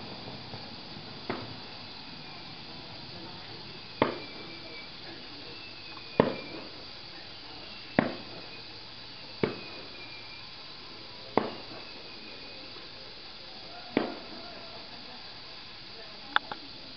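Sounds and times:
fireworks bangs with echo: 0:00.0 - 0:10.3, 0:11.2 - 0:12.9, 0:13.8 - 0:14.7
faint falling whistles: 0:00.0 - 0:14.8.

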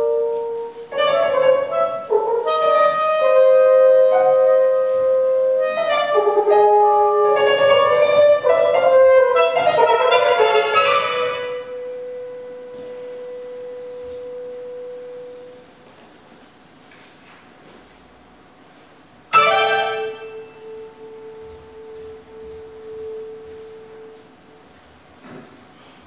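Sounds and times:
french horn: 0:00.0 - 0:15.7, 0:19.3 - 0:24.3
clarinet: 0:00.0 - 0:15.9, 0:19.3 - 0:24.8
piano: 0:00.0 - 0:16.5, 0:19.2 - 0:26.0.

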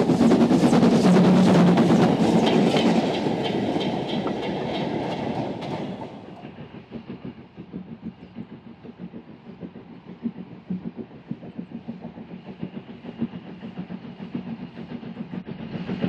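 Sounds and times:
steam train rhythmic beats: 0:00.0 - 0:16.0
train low pulsing: 0:00.0 - 0:16.0.

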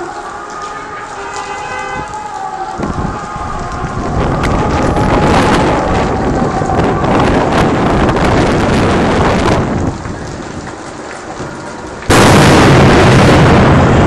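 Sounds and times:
building fire roaring and crackling: 0:00.0 - 0:14.0
gas cylinder explosion: 0:12.1 - 0:14.0.

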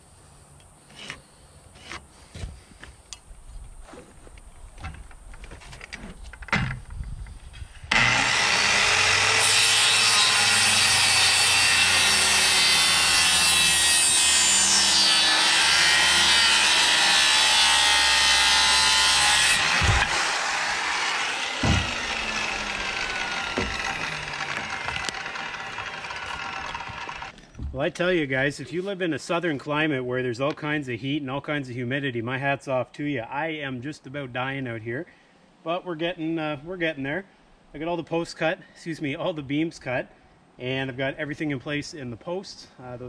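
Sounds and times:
circular saw cutting wood: 0:07.9 - 0:27.4
thumps: 0:19.5 - 0:20.5, 0:21.2 - 0:27.8.

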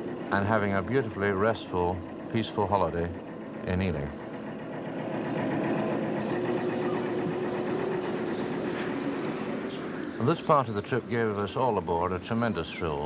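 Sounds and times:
boat engine running: 0:00.0 - 0:13.0.

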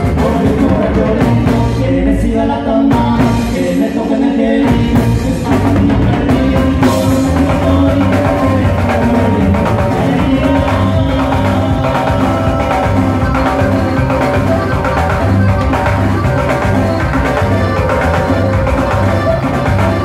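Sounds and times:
button accordion: 0:00.0 - 0:20.0
drum kit beat: 0:00.0 - 0:20.0
electric bass: 0:00.0 - 0:20.0
strummed rhythm guitar: 0:04.9 - 0:20.0.

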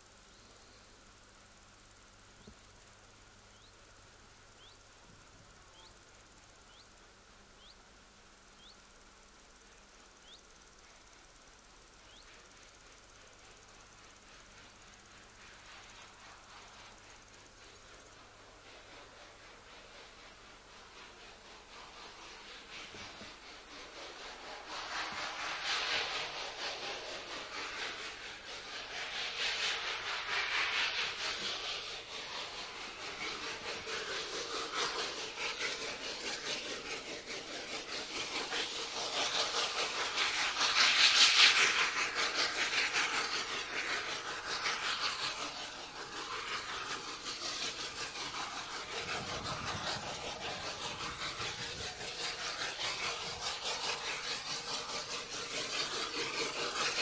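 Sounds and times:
steam hiss: 0:00.0 - 0:57.0
steam locomotive exhaust beats: 0:00.0 - 0:57.0.

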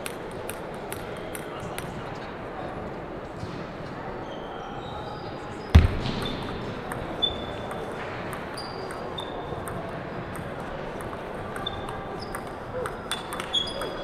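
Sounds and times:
heavy thump: 0:05.8 - 0:07.0
ping pong ball clicking: 0:06.4 - 0:14.0.

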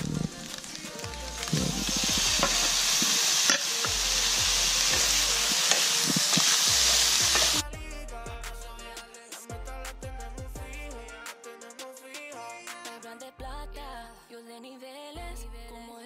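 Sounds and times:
tomatoes sizzling in frying pan: 0:00.0 - 0:07.6
wooden spatula stirring: 0:00.0 - 0:07.6
background music: 0:00.0 - 0:16.0.

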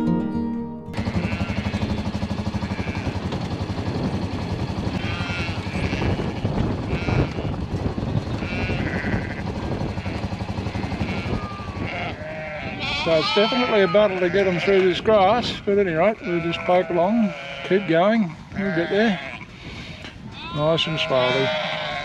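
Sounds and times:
sheep and lambs bleating: 0:01.0 - 0:02.0, 0:02.6 - 0:03.2, 0:05.0 - 0:07.6, 0:08.4 - 0:22.0
farm vehicle engine running: 0:01.0 - 0:15.5.

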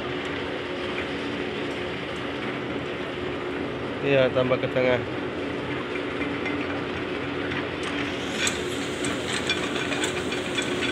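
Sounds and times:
engine drone: 0:00.0 - 0:10.9
hiss: 0:08.0 - 0:10.9.

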